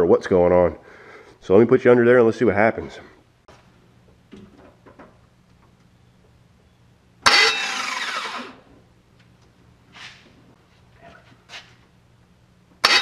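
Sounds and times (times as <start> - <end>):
starter motor whirring: 7.2 - 8.6.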